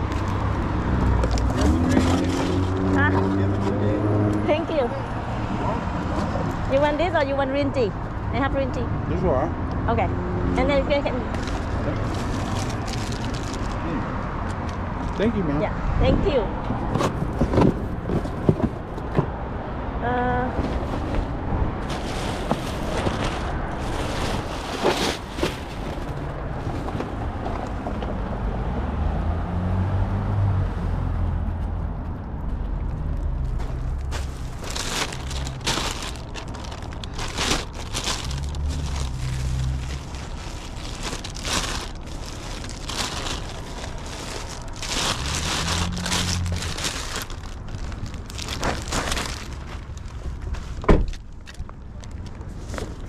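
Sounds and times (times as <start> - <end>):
plastic bags rustling: 1.0 - 3.1, 11.2 - 13.8, 21.8 - 26.9, 34.0 - 53.0.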